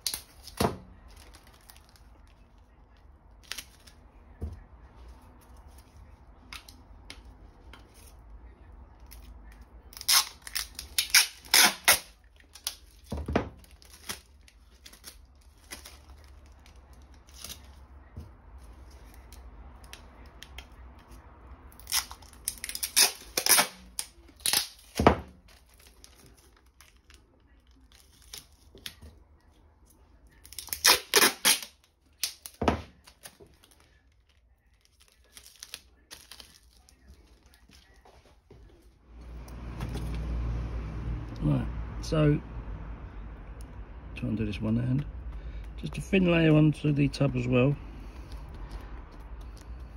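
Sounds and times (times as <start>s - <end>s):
adhesive tape ripping: 0.0s - 2.2s, 3.3s - 4.0s, 9.0s - 17.8s, 18.9s - 29.0s, 30.3s - 37.8s.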